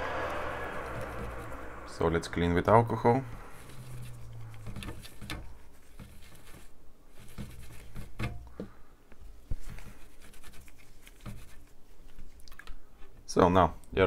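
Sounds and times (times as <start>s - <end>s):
cloth wiping circuit board: 3.1s - 8.4s, 9.2s - 12.4s.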